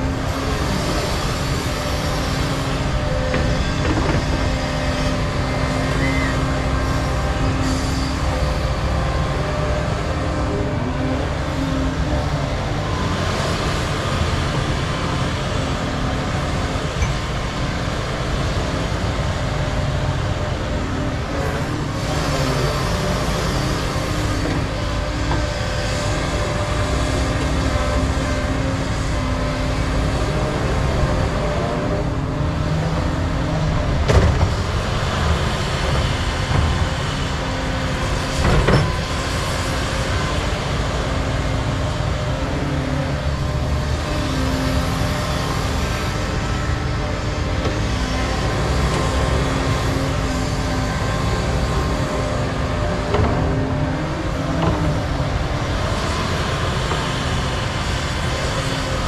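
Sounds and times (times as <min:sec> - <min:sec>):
excavator diesel engine drone: 0:00.0 - 0:59.0.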